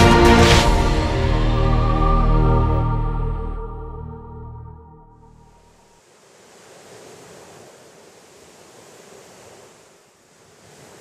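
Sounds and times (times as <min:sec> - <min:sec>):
sea waves washing on shore: 0:06.0 - 0:11.0.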